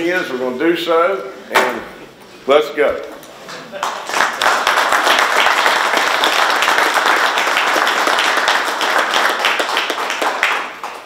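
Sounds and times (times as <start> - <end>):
people applauding: 3.7 - 11.0.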